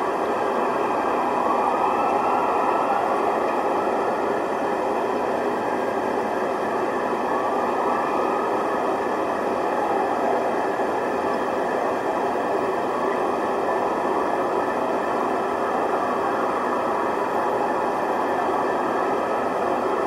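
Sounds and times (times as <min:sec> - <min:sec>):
continuous rushing street noise: 0:00.0 - 0:20.0
faint wavering siren tones: 0:00.0 - 0:20.0.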